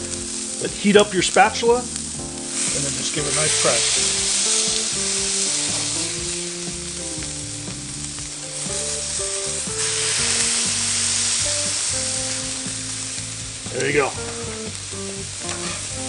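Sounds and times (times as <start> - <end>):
background music: 0.0 - 16.0
meat sizzling on a griddle: 0.0 - 16.0
spatula pressing on griddle: 15.4 - 16.0.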